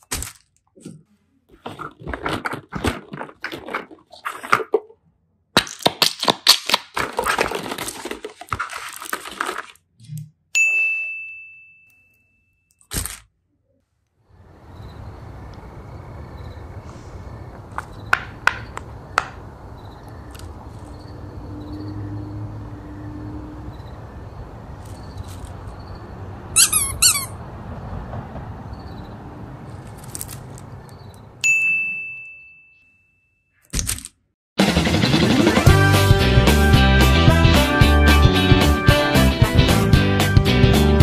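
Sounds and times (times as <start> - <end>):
bright ringing ding: 10.6 - 12.7, 31.4 - 33.6
high squeaky chirps: 26.6 - 27.4.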